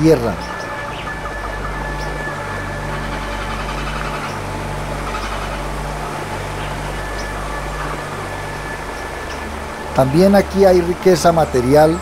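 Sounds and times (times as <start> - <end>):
ambient score bass notes: 0.0 - 12.0
steady rushing hiss: 0.0 - 12.0.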